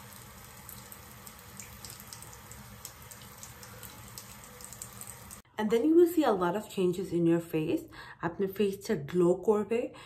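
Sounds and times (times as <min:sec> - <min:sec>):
water running from a tap: 0:00.0 - 0:05.4.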